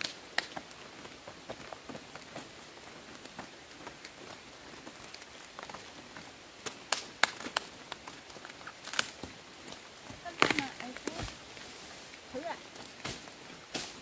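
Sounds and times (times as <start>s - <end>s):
stems snapping: 0.0s - 0.7s, 6.6s - 11.4s
leaves rustling and crackling: 0.0s - 14.0s.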